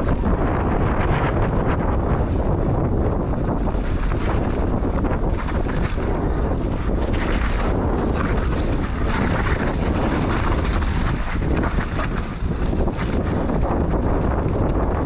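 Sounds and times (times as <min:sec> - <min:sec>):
tyres rolling on dirt trail: 0:00.0 - 0:15.0
wind buffeting microphone: 0:00.0 - 0:15.0
bike frame rattling: 0:03.0 - 0:15.0.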